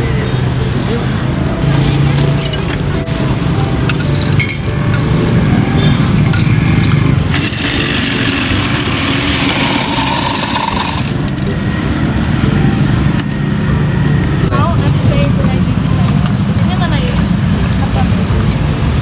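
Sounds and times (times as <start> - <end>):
ice shaver grinding ice: 6.2 - 12.9.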